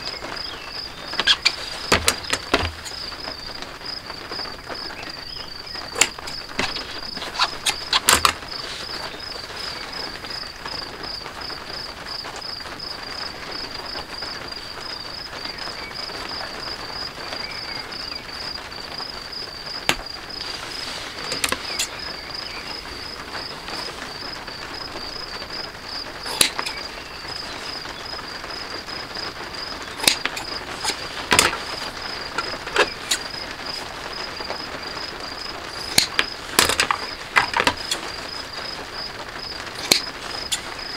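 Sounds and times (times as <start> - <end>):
cricket chirping: 0.0 - 40.9
hand tools clicking: 26.3 - 26.8.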